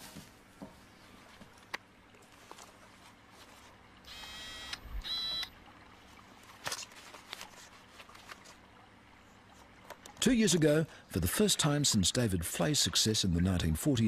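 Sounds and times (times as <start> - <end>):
electronic buzzing tones: 4.0 - 5.6.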